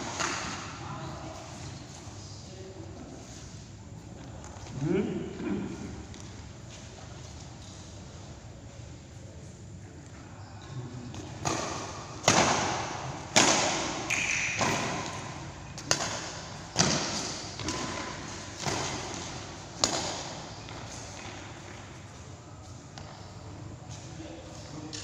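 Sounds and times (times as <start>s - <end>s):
racket hitting shuttlecock: 0.0s - 0.8s, 11.4s - 21.4s.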